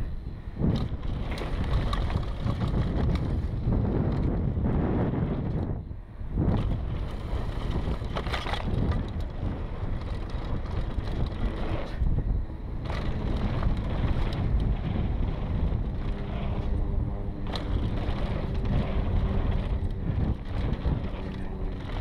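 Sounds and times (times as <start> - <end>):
bike tyres rolling on dirt: 0.0 - 22.0
wind rush on microphone: 0.0 - 22.0
bike clattering: 0.6 - 4.5, 6.4 - 22.0.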